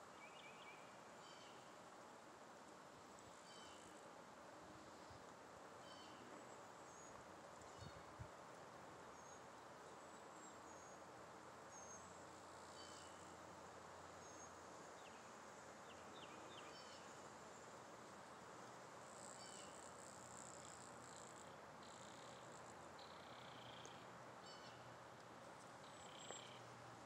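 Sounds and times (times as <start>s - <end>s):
outdoor ambience hiss: 0.0s - 27.0s
songbirds chirping: 21.4s - 26.8s.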